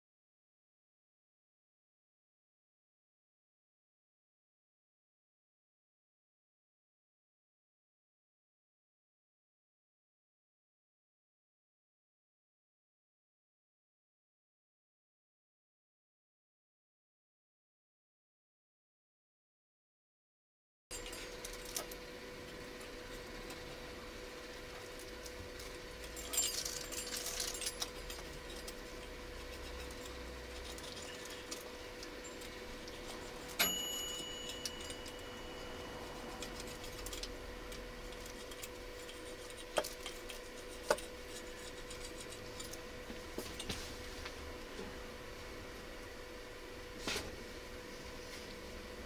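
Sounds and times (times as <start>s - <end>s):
faint steady hum: 20.9s - 49.0s
pizza cutter crunching crust: 21.0s - 33.6s, 34.2s - 44.2s
metallic clink: 26.0s - 28.8s, 33.4s - 35.8s.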